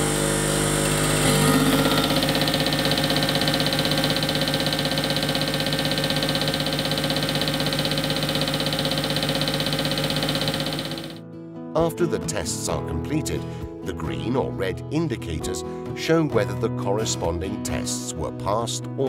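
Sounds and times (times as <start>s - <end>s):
machine hum: 0.0s - 11.2s
rapid even ticking: 2.0s - 11.2s.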